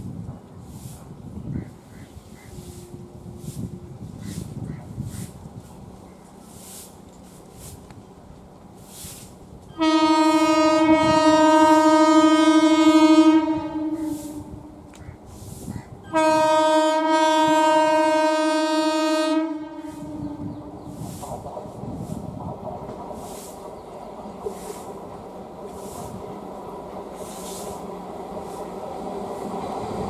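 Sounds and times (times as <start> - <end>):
electric train horn blasts: 9.7 - 14.9, 16.0 - 20.7.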